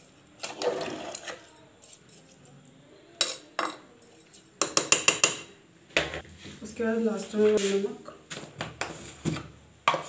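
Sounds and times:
metal spoon stirring in pot: 0.0s - 5.5s
spoon clinking against pot: 3.2s - 5.5s.

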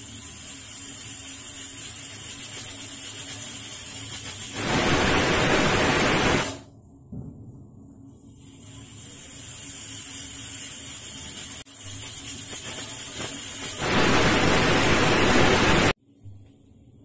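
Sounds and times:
rush of escaping steam: 4.5s - 6.6s, 11.2s - 16.0s
pressure cooker whistle hissing: 4.6s - 6.6s, 13.6s - 16.0s.

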